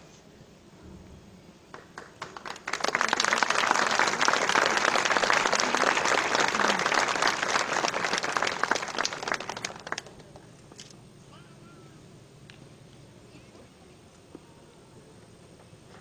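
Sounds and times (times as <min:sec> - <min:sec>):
audience applauding: 0:01.7 - 0:10.5.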